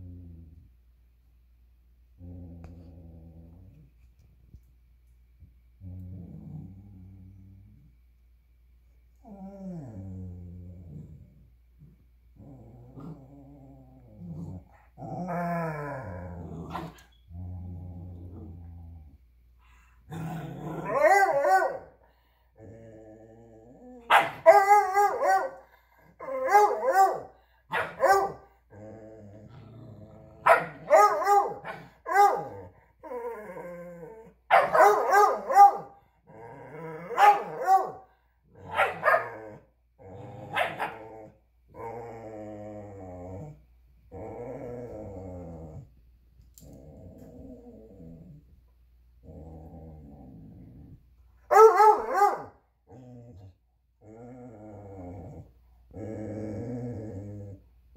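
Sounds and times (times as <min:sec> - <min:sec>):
dogs play growling: 0:02.1 - 0:04.6, 0:05.7 - 0:08.0, 0:09.1 - 0:21.3, 0:22.0 - 0:24.5, 0:28.5 - 0:31.0, 0:31.6 - 0:34.5, 0:36.0 - 0:37.2, 0:38.3 - 0:51.2, 0:52.8 - 0:57.9
dog barking and baying: 0:20.8 - 0:22.0, 0:24.1 - 0:25.6, 0:26.2 - 0:28.5, 0:30.4 - 0:32.6, 0:34.5 - 0:36.0, 0:37.1 - 0:38.1, 0:38.7 - 0:39.4, 0:40.5 - 0:41.0, 0:51.5 - 0:52.6.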